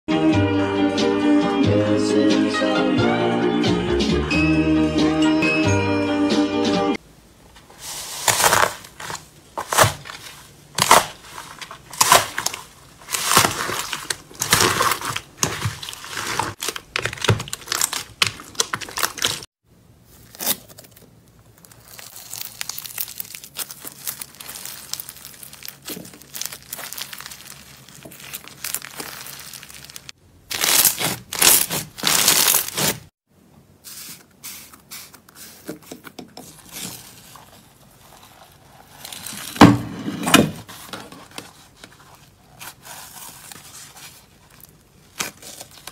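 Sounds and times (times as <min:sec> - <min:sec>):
foam bead slime crackling: 0:07.9 - 0:33.1.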